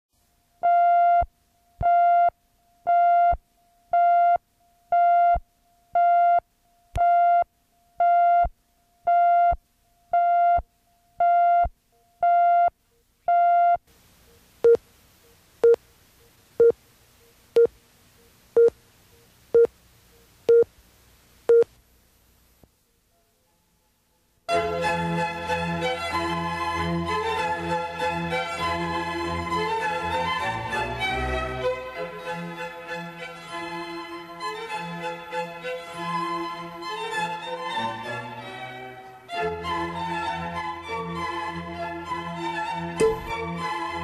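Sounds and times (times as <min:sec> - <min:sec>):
faint hiss: 0:13.8 - 0:25.5.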